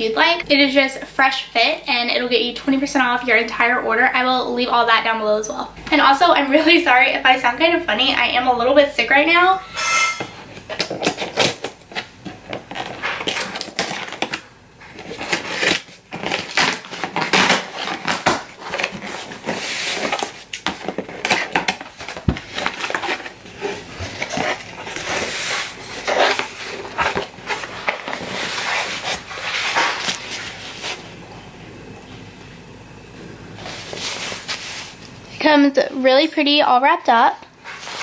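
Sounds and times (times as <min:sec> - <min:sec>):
scissors cutting packing tape: 0:10.2 - 0:14.4, 0:15.0 - 0:30.4
packaging being handled: 0:10.5 - 0:31.1.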